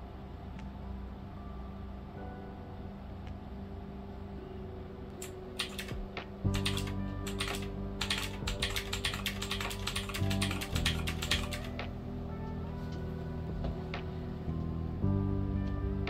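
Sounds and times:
background music: 0:00.0 - 0:16.0
keys clicking: 0:05.2 - 0:11.8.

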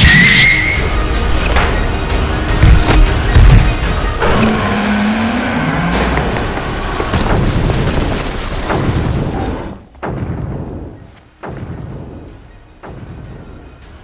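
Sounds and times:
dramatic trailer soundtrack: 0:00.0 - 0:14.0
deep booming hits: 0:07.1 - 0:13.6.

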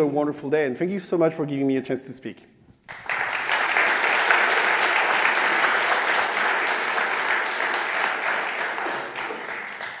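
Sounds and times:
audience applauding: 0:02.9 - 0:10.0.

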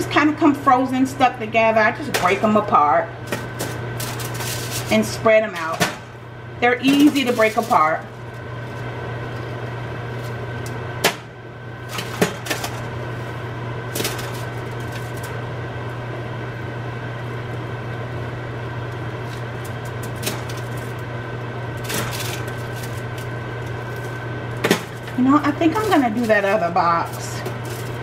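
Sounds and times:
appliance hum with high whine: 0:00.0 - 0:28.0
aluminium foil crinkling: 0:03.2 - 0:05.8, 0:06.8 - 0:10.7, 0:13.9 - 0:15.4, 0:19.2 - 0:21.1, 0:21.7 - 0:28.0.

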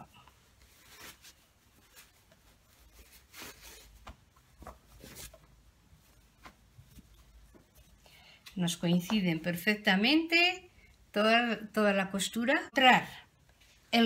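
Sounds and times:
fabric cushion cover rustling: 0:00.0 - 0:08.0.

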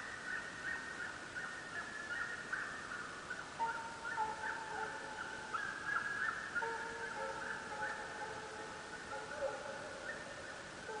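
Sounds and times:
hounds baying: 0:03.6 - 0:10.3.

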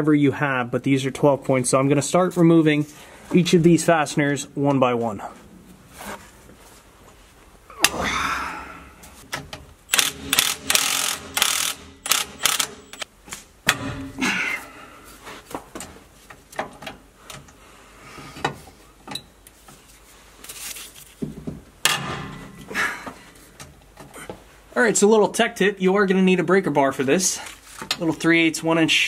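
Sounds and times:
socket ratchet clicking: 0:09.9 - 0:13.0.

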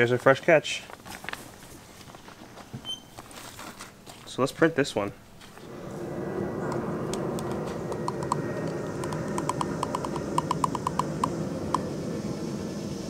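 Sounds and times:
low background rumble: 0:05.2 - 0:13.0.

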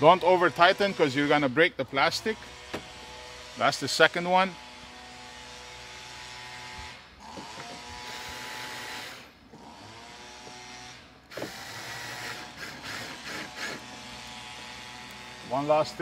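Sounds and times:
electric screwdriver motor whining: 0:11.3 - 0:15.3.

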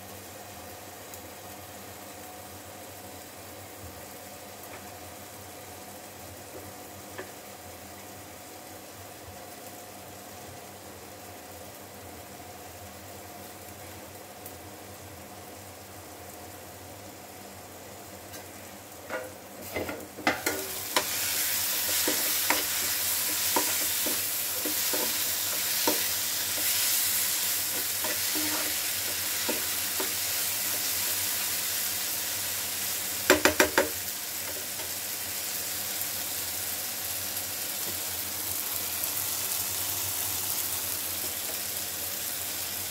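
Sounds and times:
food sizzling in a frying pan: 0:00.0 - 0:42.9
spoon knocking on a pan: 0:19.1 - 0:21.1, 0:21.8 - 0:26.7, 0:27.7 - 0:30.8, 0:33.3 - 0:34.6
steel spoon scraping a pan: 0:19.1 - 0:31.0.

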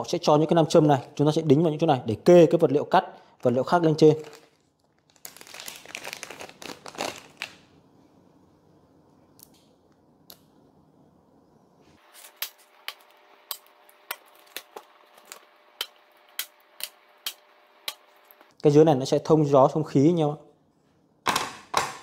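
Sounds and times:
packaging rustle: 0:03.4 - 0:07.7.

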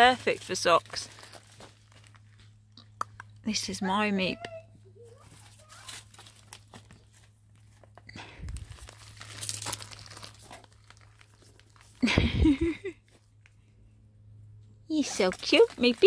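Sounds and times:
fabric and leaves rustling: 0:05.2 - 0:12.1.

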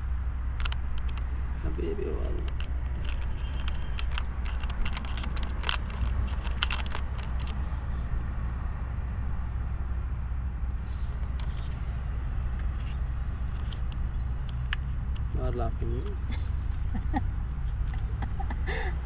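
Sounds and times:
steady low rumble: 0:00.0 - 0:19.0
sharp clicks and crackles: 0:00.5 - 0:01.3, 0:02.3 - 0:07.6, 0:12.5 - 0:17.0.

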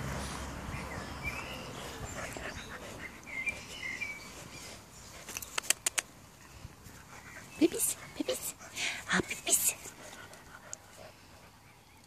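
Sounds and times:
puppies moving: 0:01.3 - 0:11.6
sharp clicks: 0:05.3 - 0:06.1.

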